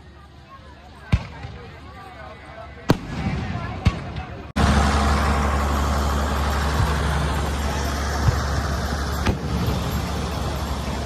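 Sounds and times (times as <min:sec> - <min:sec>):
crowd noise: 0:00.0 - 0:11.0
engine droning: 0:02.5 - 0:11.0.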